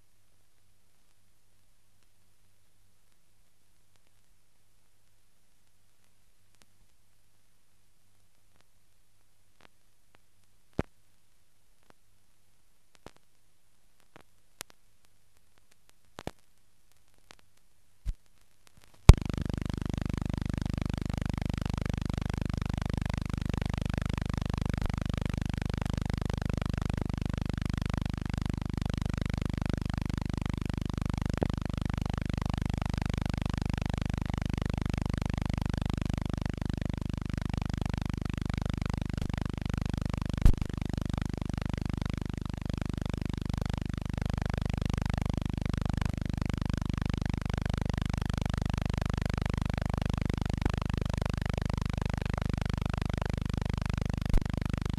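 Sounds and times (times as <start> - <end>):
steady low hum: 19.0 - 54.9.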